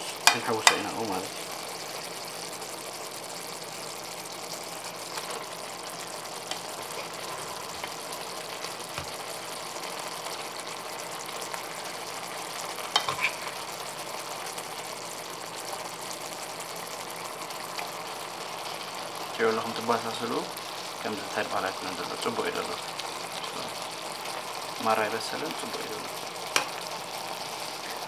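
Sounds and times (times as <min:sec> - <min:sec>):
food sizzling in a wok: 0:00.0 - 0:28.0.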